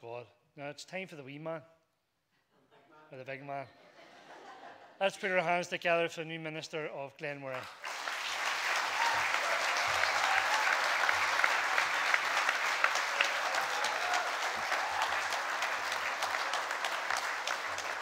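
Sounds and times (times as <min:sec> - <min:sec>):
congregation applauding: 0:07.6 - 0:18.0.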